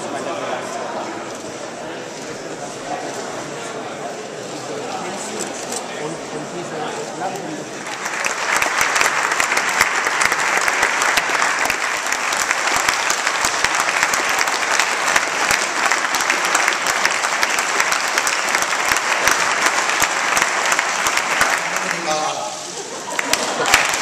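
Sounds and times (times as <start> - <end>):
crowd applause: 7.7 - 24.0.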